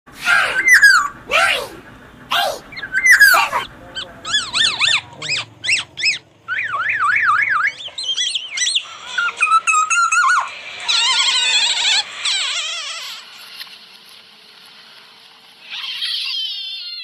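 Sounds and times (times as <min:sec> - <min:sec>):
bird singing whistled glides: 0:00.5 - 0:01.2, 0:02.7 - 0:03.6, 0:04.3 - 0:11.3.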